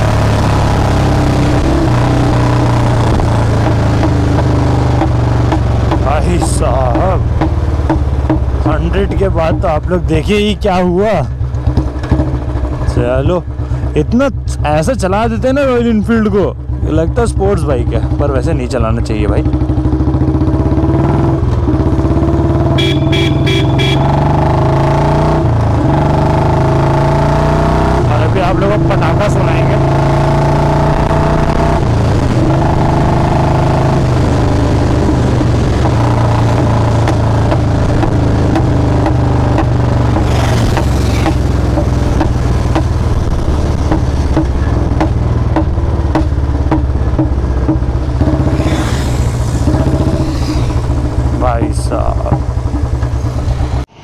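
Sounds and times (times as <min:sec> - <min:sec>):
motorcycle engine running loud: 0:00.0 - 0:54.0
sharp exhaust pops: 0:01.0 - 0:13.9, 0:28.1 - 0:53.8
vehicle horn beeping: 0:22.7 - 0:24.2.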